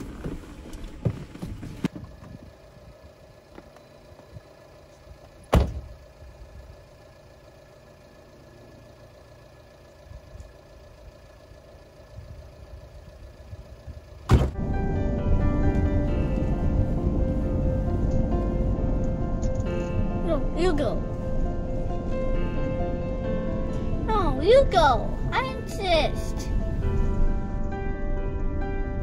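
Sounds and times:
car door shutting thud: 0:05.5 - 0:05.9, 0:14.2 - 0:14.6.

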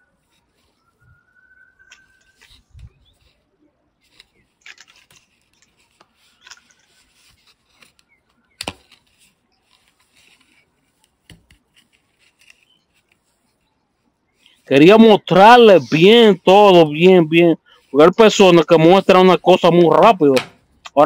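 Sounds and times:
fingers rubbing plastic wallet: 0:01.8 - 0:13.7.

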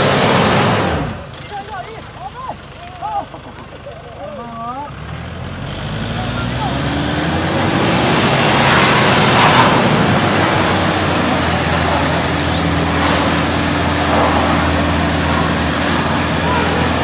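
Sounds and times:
truck engine running under load: 0:00.0 - 0:17.0
rushing noise: 0:06.8 - 0:17.0.

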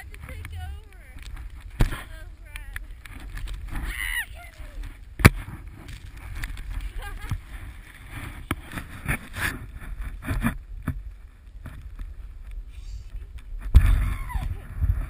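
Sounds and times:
wind on microphone: 0:00.0 - 0:15.0
snowboard riding through powder: 0:03.3 - 0:11.2.

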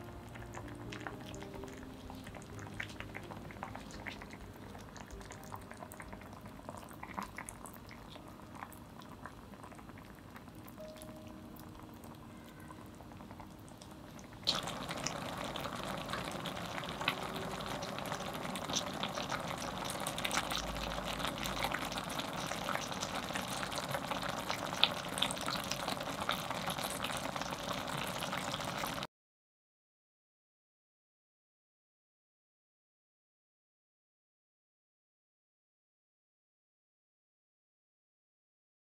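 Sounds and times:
broth bubbling and crackling in pot: 0:00.0 - 0:29.1.

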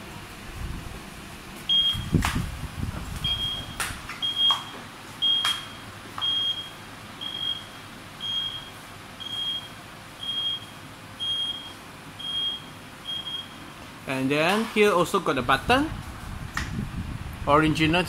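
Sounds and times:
high-pitched warning beeps: 0:01.7 - 0:02.1, 0:03.2 - 0:13.7.

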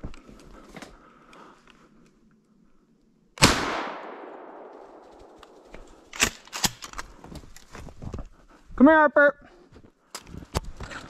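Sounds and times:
shotgun shot with echo: 0:03.4 - 0:06.4.

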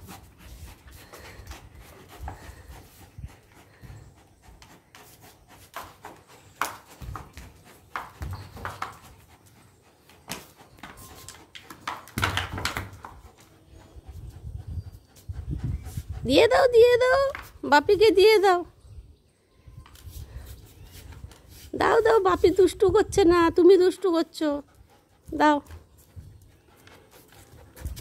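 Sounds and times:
dog panting: 0:00.0 - 0:18.5, 0:21.1 - 0:28.0.

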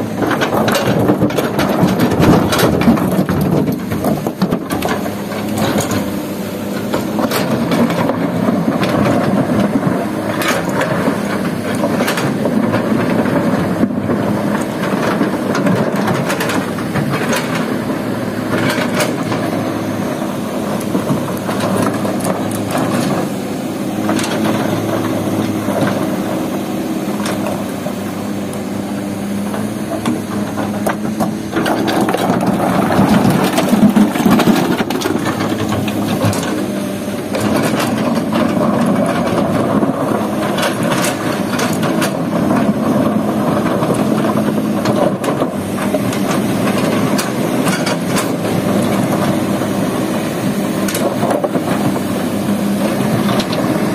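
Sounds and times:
excavator diesel engine running: 0:00.0 - 0:53.9
rocks tumbling into truck bed: 0:29.4 - 0:36.7
rocks scraping in steel bucket: 0:29.6 - 0:36.7.

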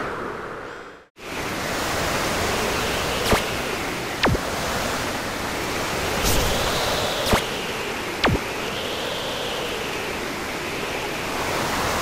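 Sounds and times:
gale-force wind: 0:00.0 - 0:12.0
sharp swishes: 0:03.2 - 0:03.6, 0:06.2 - 0:08.4.

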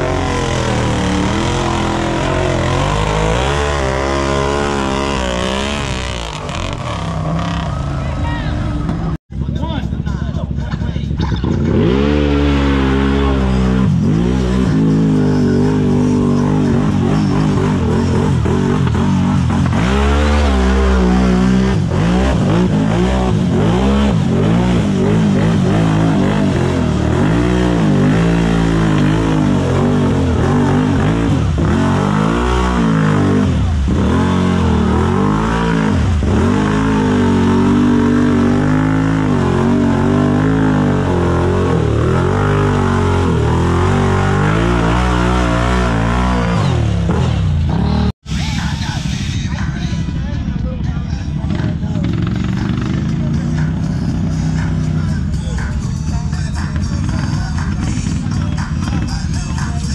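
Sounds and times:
engine revving hard: 0:00.0 - 0:09.2, 0:11.4 - 0:48.2.

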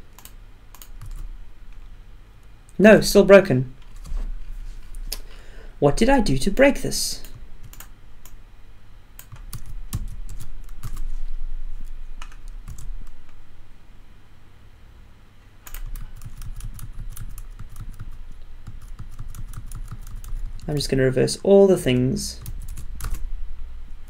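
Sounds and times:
typing on computer keyboard: 0:00.1 - 0:01.3, 0:07.2 - 0:07.9, 0:09.2 - 0:11.0, 0:12.2 - 0:12.9, 0:15.7 - 0:20.7, 0:22.4 - 0:23.2.

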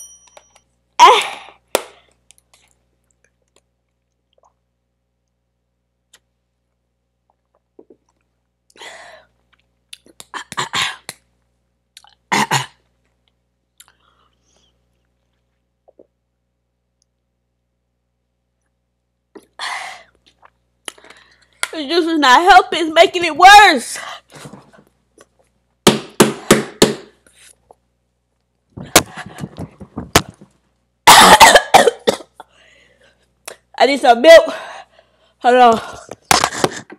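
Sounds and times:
hands slapping and banging: 0:28.8 - 0:30.5.

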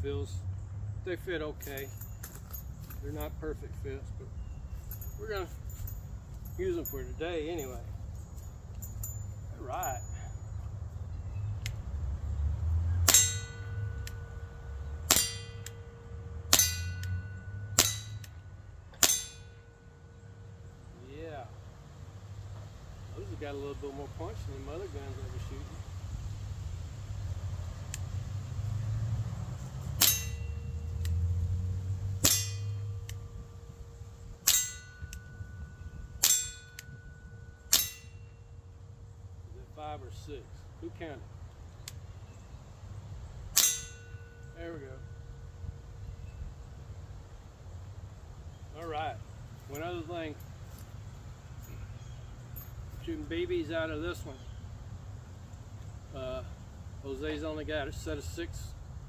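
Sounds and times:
steel target ringing: 0:13.0 - 0:20.9, 0:30.0 - 0:31.0, 0:32.2 - 0:39.0, 0:43.5 - 0:46.5.

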